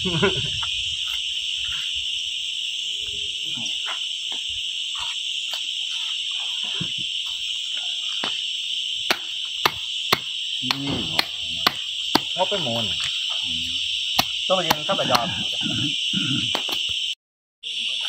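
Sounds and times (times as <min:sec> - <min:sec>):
insects chorus: 0:00.0 - 0:18.0
machete chopping on cardboard: 0:09.1 - 0:12.4, 0:14.2 - 0:15.3.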